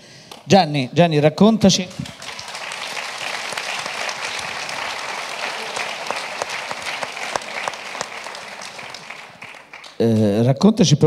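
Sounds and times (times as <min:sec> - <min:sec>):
audience applauding: 0:01.9 - 0:10.2.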